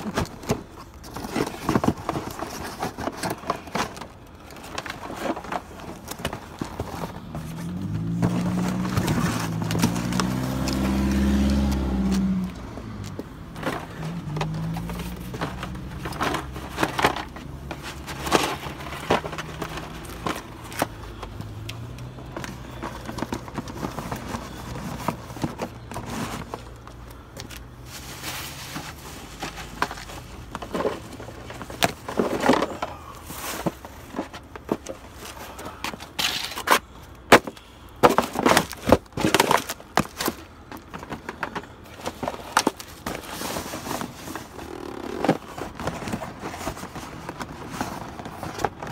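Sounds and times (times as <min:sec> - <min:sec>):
cardboard boxes crinkling and crunching: 0:00.0 - 0:48.9
low engine hum: 0:07.3 - 0:27.0.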